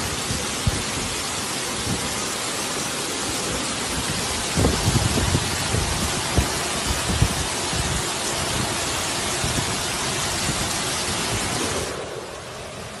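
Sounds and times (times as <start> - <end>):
heavy rain and rushing floodwater: 0.0 - 13.0.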